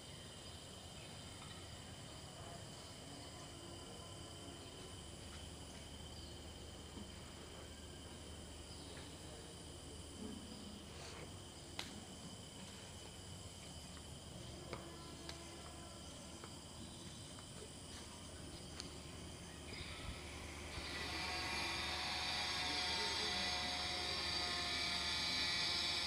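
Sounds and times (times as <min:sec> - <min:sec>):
thin high whine: 0:18.6 - 0:26.0
hiss: 0:19.5 - 0:26.0.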